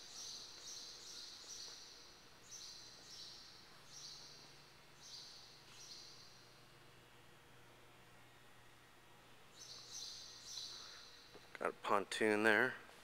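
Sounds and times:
bird chirping: 0.0 - 6.6, 9.5 - 11.4
low steady hum: 0.0 - 13.0.

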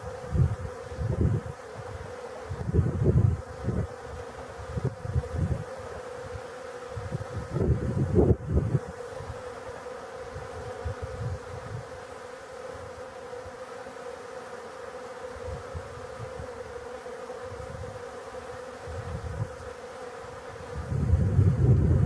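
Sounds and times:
bees buzzing: 0.0 - 22.0
wind rumbling on microphone: 0.1 - 5.8, 6.9 - 9.4, 10.3 - 12.0, 15.4 - 16.6, 18.8 - 19.7, 20.5 - 22.0.

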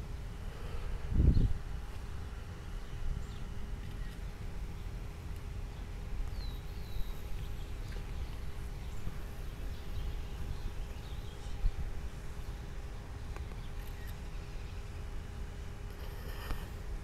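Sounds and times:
faint steady hum: 0.0 - 17.0
wind rumbling on microphone: 0.0 - 17.0
bird chirps: 6.3 - 11.7, 13.4 - 14.9.

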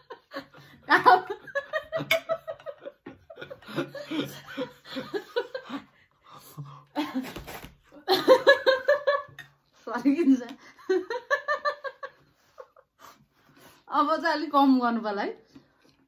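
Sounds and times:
man and woman laughing: 0.0 - 6.0.

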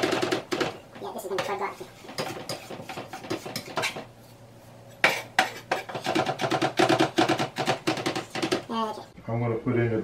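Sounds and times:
knife chopping on wooden board: 5.0 - 8.7.

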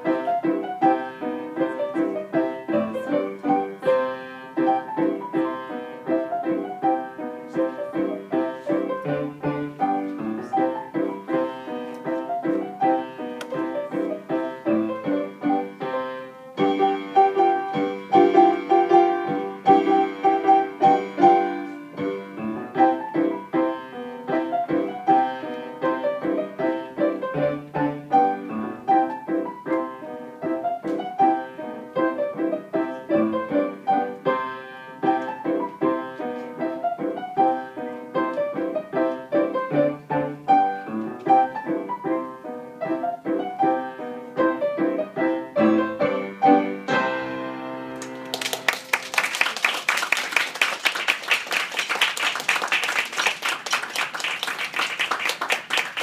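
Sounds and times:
ragtime piano piece: 0.0 - 56.0
audience applause: 48.0 - 56.0.

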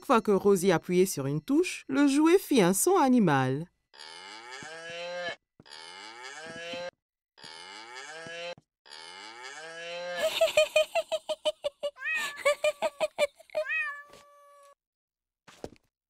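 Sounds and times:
toy keyboard cow moo: 4.0 - 10.2.

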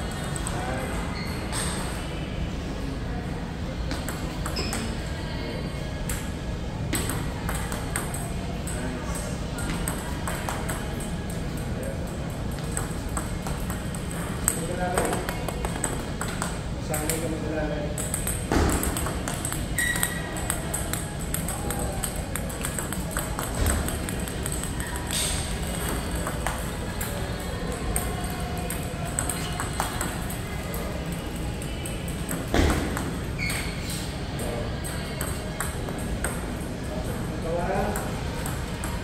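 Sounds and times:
table tennis ball pinging: 3.9 - 5.0, 6.9 - 8.9, 9.6 - 11.6, 12.5 - 17.3, 17.9 - 33.8, 34.8 - 37.2, 37.8 - 39.0
balls clicking from nearby tables: 6.9 - 39.0.

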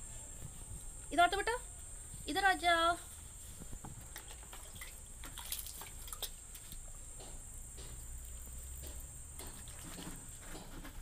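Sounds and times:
small water drips: 4.1 - 7.0, 7.9 - 10.1.

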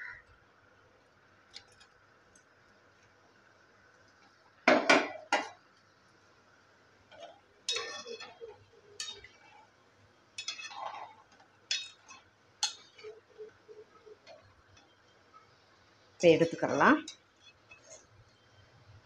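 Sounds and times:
metal ladle clinking and scraping: 7.1 - 9.6, 10.4 - 13.5.

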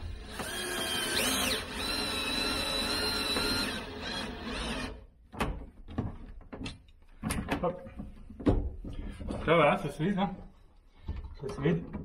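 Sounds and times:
cordless drill motor whining: 0.0 - 5.0.

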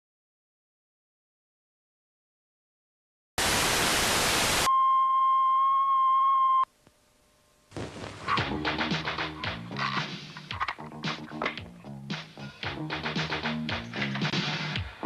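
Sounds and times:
television static hiss: 3.4 - 4.7, 6.8 - 8.5
steady test-tone beep: 4.7 - 6.7.

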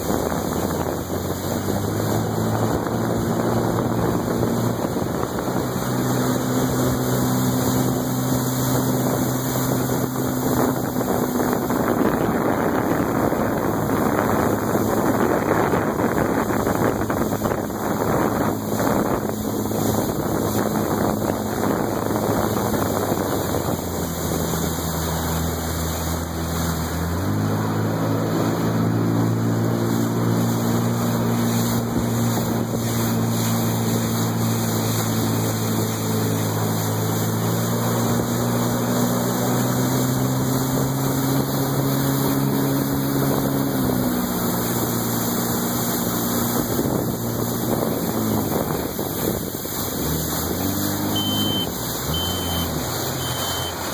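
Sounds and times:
watercraft engine running: 0.0 - 53.9
wind noise on microphone: 0.0 - 53.9.

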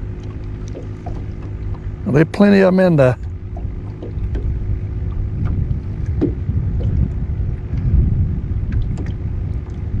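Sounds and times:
faint steady hum: 0.0 - 10.0
low rumble on open water: 0.0 - 10.0
light ticks: 0.2 - 1.8.

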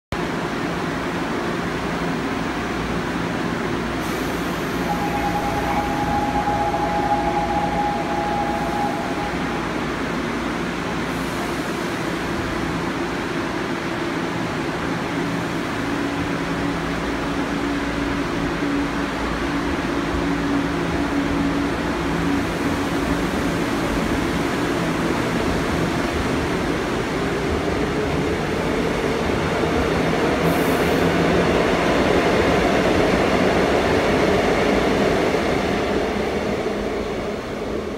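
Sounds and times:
electric train hum: 0.2 - 37.9
wheels rumbling on rail: 0.2 - 37.9
high steady tone: 4.1 - 10.9.

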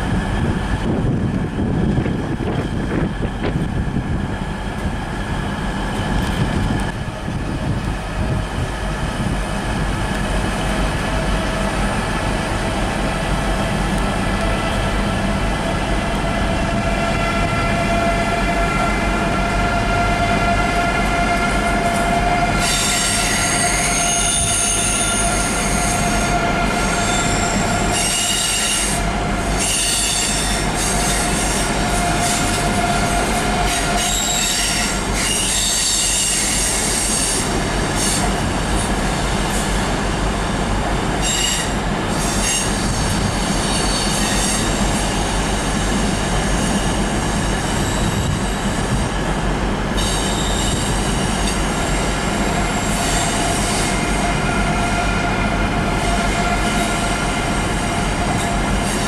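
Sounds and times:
high-speed train rumbling on tracks: 0.0 - 59.0
train whine: 0.0 - 59.0
wheel squeal: 33.7 - 37.4, 41.2 - 44.8, 50.0 - 51.1.

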